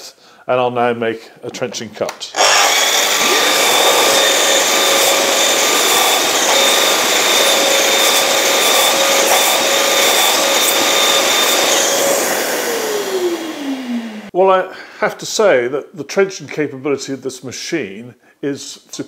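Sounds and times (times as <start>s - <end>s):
mitre saw cutting wood: 2.4s - 14.3s
saw motor winding down: 2.4s - 14.3s.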